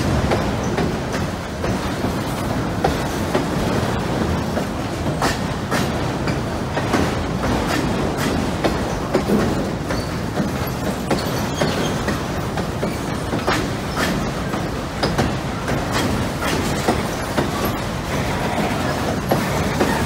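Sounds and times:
rumble of train wheels on rail: 0.0s - 20.0s
wheels clacking over rail joints: 0.0s - 20.0s.

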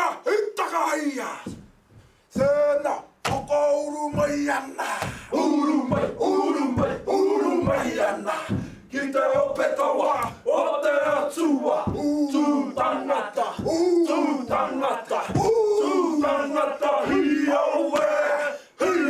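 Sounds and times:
men chanting in unison: 2.3s - 19.0s
stamping and body slaps: 3.2s - 3.5s.

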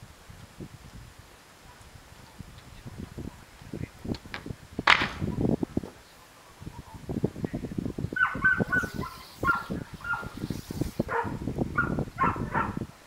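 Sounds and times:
board knocking and clattering: 4.3s - 5.3s
dog yipping: 8.2s - 10.4s, 11.1s - 12.8s.

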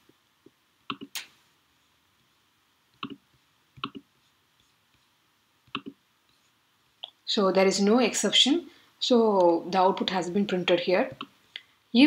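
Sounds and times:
computer mouse clicks: 0.9s - 1.3s, 3.0s - 3.2s, 3.8s - 4.0s, 5.7s - 6.0s.

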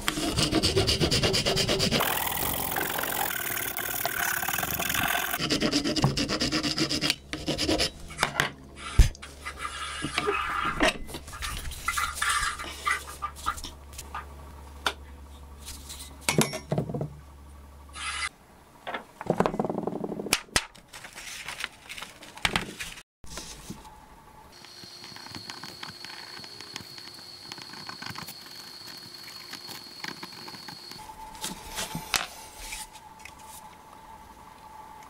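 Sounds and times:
paper rustling: 20.8s - 23.8s.

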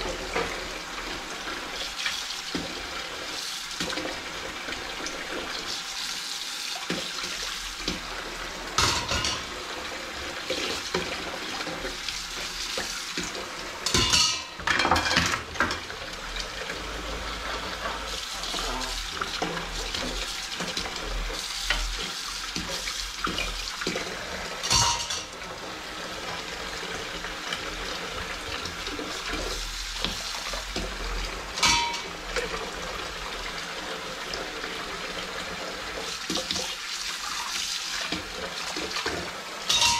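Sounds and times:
dishes and cutlery clinking: 8.8s - 9.5s, 13.8s - 15.8s, 24.6s - 25.3s, 31.6s - 32.1s, 39.7s - 39.9s
tap running into sink: 21.6s - 24.1s.

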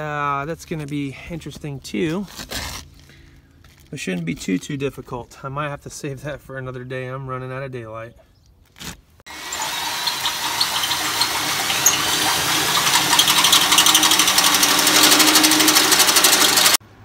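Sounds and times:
power drill cutting with hole saw: 9.3s - 16.8s.

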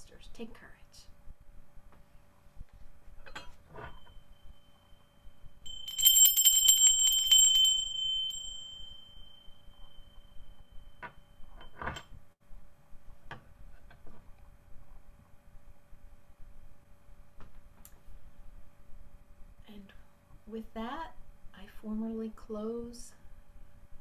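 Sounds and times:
small bell ringing: 5.6s - 11.8s.

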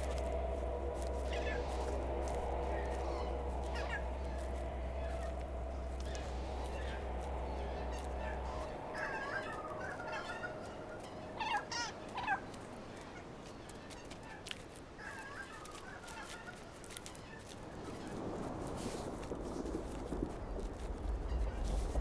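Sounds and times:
faint low hum: 0.0s - 14.5s.

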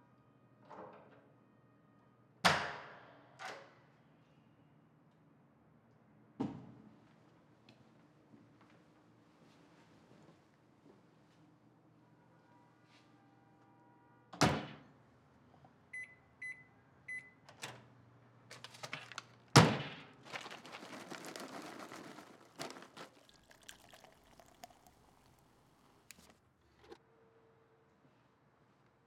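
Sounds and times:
cola pouring and fizzing: 20.3s - 26.3s.

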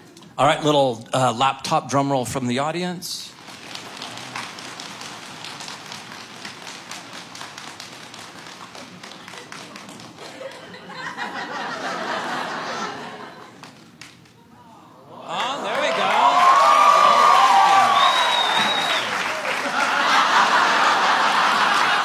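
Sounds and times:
hands slapping laps in drum roll: 3.4s - 10.7s
crowd laughter: 9.1s - 13.7s, 19.2s - 22.0s.

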